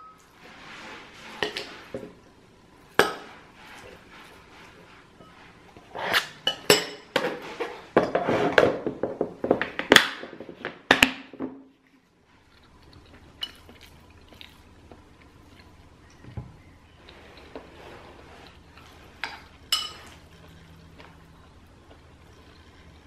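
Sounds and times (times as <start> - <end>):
spoon clinking ceramic bowl: 19.3 - 20.2.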